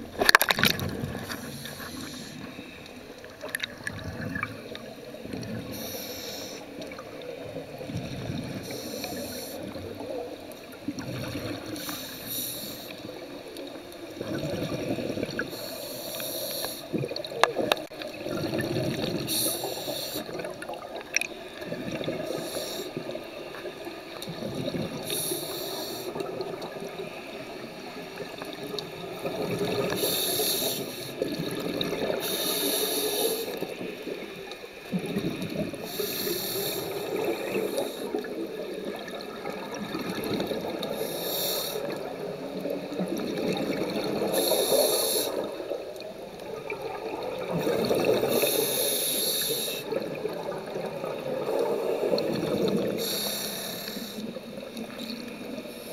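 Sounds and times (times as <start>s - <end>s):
exhaled air bubbling: 0.0s - 55.9s
regulator hissing inhale: 1.2s - 3.2s, 5.5s - 7.0s, 8.6s - 9.8s, 11.7s - 13.4s, 15.3s - 17.0s, 19.2s - 20.5s, 22.1s - 23.4s, 25.0s - 26.3s, 29.7s - 31.2s, 32.1s - 34.2s, 35.8s - 38.3s, 40.7s - 42.0s, 44.2s - 45.8s, 47.6s - 50.1s, 51.6s - 54.7s.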